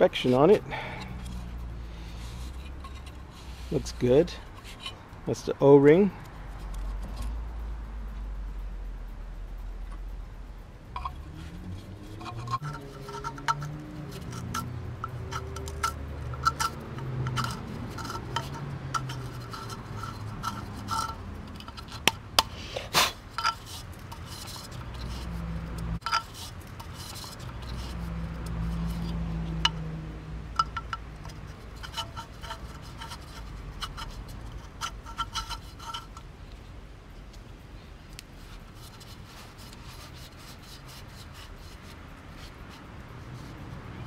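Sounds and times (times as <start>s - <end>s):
low hum: 6.4s - 22.6s, 23.2s - 37.8s.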